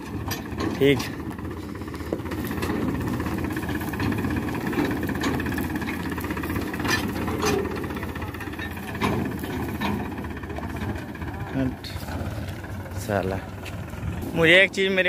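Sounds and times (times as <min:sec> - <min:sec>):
sharp knocks and rattles: 0:00.0 - 0:14.4
tractor diesel engine running: 0:00.0 - 0:15.0.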